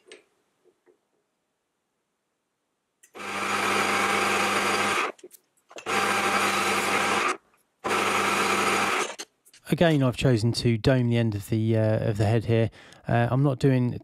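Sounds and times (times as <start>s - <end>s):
metal lathe humming: 3.2s - 5.2s, 5.8s - 9.2s.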